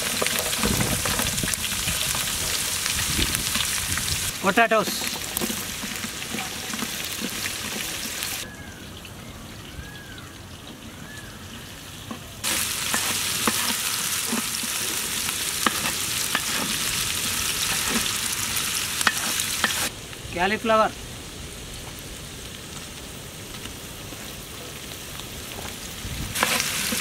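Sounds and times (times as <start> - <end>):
vegetables sizzling in oil: 0.0 - 8.5, 11.5 - 19.9, 21.3 - 27.0
wooden spatula stirring in pot: 4.6 - 8.4, 12.5 - 16.8.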